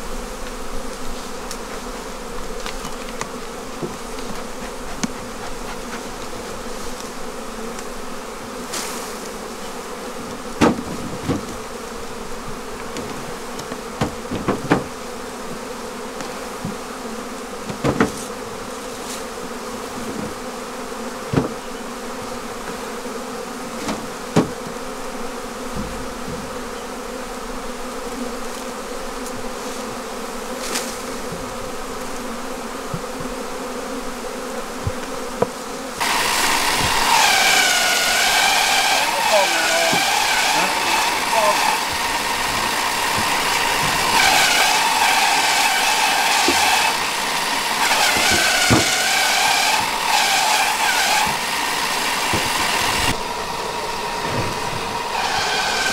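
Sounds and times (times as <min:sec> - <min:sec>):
bees buzzing: 0:00.0 - 0:55.9
sharp knocks: 0:10.6 - 0:11.6, 0:12.8 - 0:15.0, 0:17.6 - 0:18.3, 0:39.7 - 0:47.0, 0:47.8 - 0:50.2.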